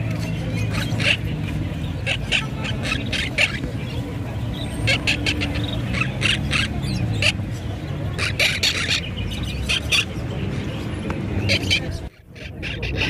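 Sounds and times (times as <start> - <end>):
parrots calling: 0.1 - 10.4, 11.3 - 13.0.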